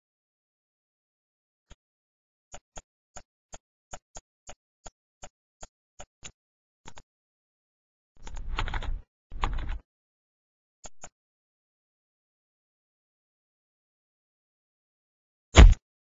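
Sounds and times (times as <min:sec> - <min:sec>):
computer mouse clicking: 0:08.2 - 0:09.8.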